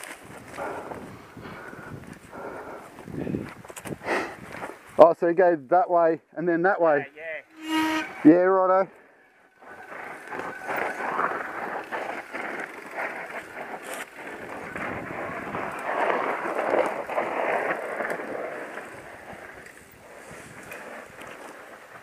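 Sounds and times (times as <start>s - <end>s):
wind on microphone: 0.0s - 4.8s, 9.6s - 22.0s
bike clicks and rattles: 0.0s - 5.0s, 9.6s - 22.0s
tyres rushing over loose dirt: 9.6s - 22.0s.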